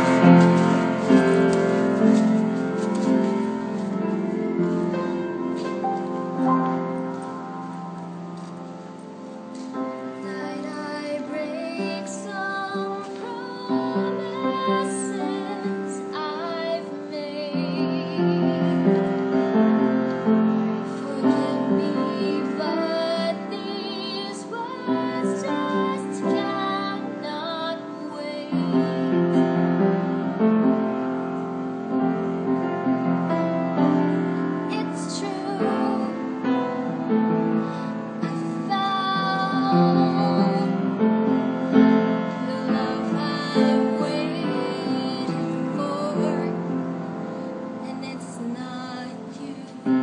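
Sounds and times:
piano: 0.0s - 50.0s
girl singing: 10.2s - 19.5s, 20.8s - 29.6s, 34.3s - 36.9s, 37.7s - 47.1s, 47.7s - 50.0s.

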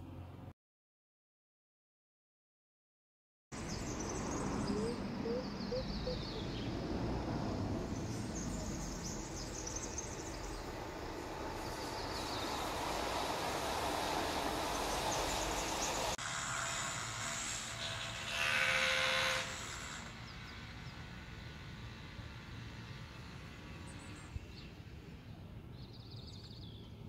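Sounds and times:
bird chirps and trills: 3.6s - 6.8s
steady rushing noise: 6.7s - 16.2s.

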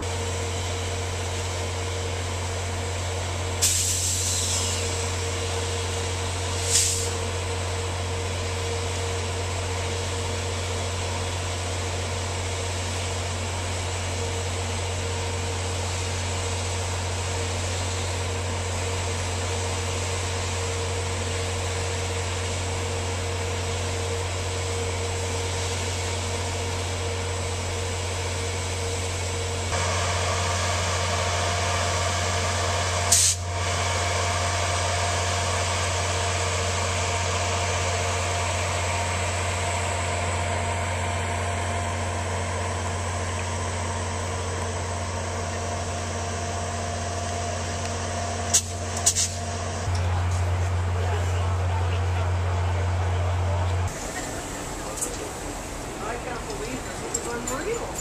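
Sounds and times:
locomotive engine idling: 0.0s - 58.0s
hiss: 3.6s - 5.2s, 6.4s - 7.3s, 33.0s - 33.7s, 48.5s - 49.5s.

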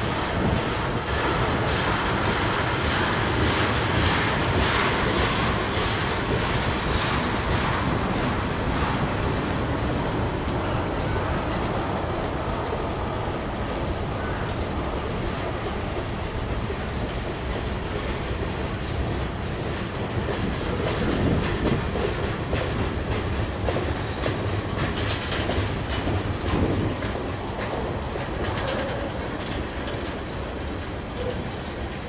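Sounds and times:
freight train rumbling past: 0.0s - 32.0s
train wheel clicks: 0.0s - 32.0s.

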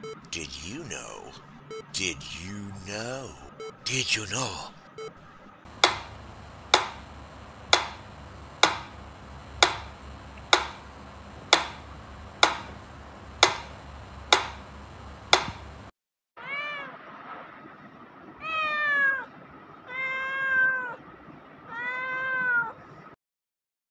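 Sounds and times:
cat meowing: 16.4s - 16.9s, 19.9s - 21.0s, 21.7s - 22.8s.

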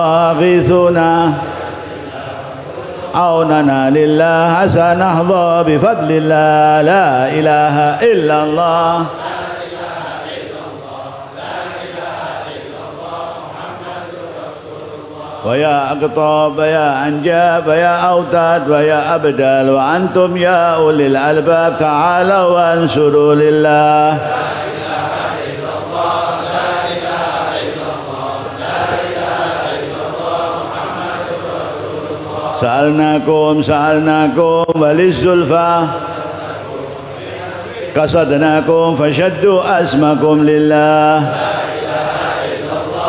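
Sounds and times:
men chanting together: 0.0s - 43.0s.

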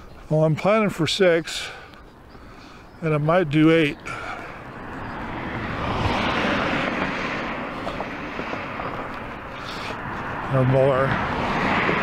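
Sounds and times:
vehicle passing by: 3.7s - 12.0s.

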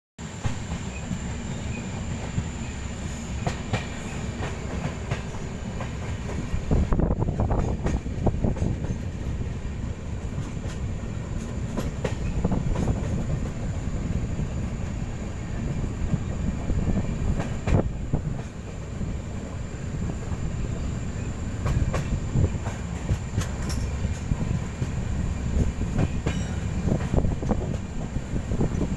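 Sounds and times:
train wheels rumbling on rail: 0.2s - 28.9s
sharp rail clacks: 21.6s - 25.0s, 25.6s - 27.9s.

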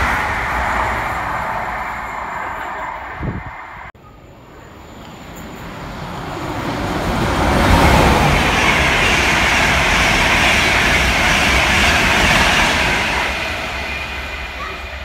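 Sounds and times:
train rushing past on rails: 0.0s - 15.0s.

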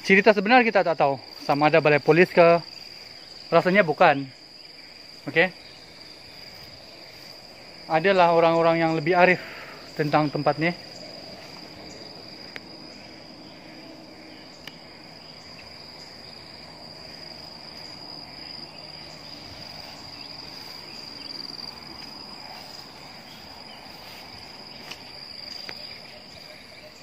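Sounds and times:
high-pitched insect drone: 0.0s - 27.0s
faint clicks: 14.6s - 14.8s.

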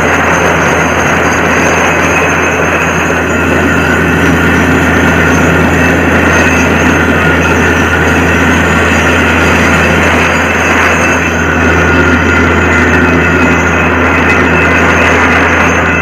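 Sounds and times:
drilling rig droning: 0.0s - 16.0s.

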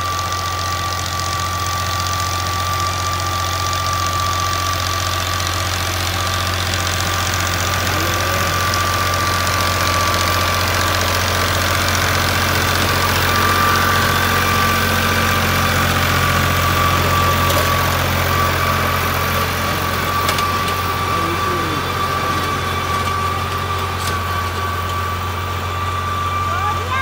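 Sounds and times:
tractor diesel engine droning: 0.0s - 27.0s
high whine: 7.2s - 27.0s.

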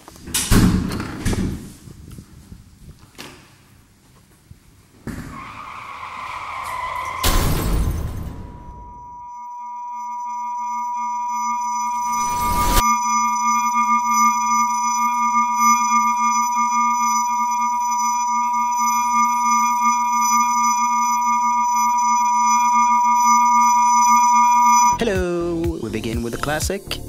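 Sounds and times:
high-pitched ringing tone: 6.1s - 25.6s
low hum: 6.2s - 25.2s.

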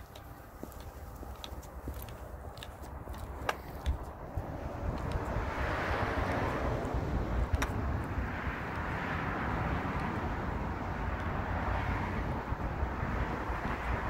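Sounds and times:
wind rumble: 0.0s - 14.0s.

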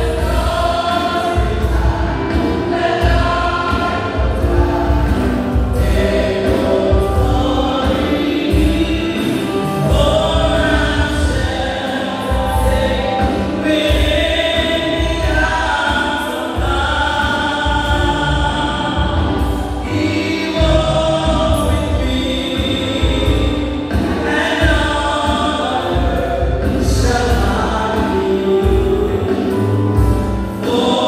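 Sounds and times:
pulsing bass accompaniment: 0.0s - 15.9s, 16.6s - 30.6s
choir singing gospel: 0.0s - 31.0s.

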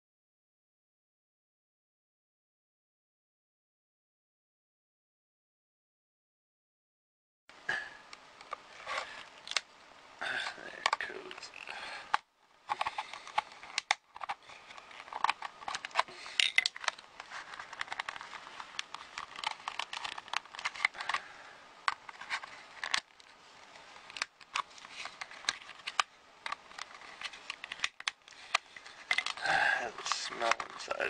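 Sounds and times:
plastic clicking and cracking: 8.4s - 9.7s, 10.8s - 23.4s, 24.0s - 29.4s, 30.0s - 31.0s.

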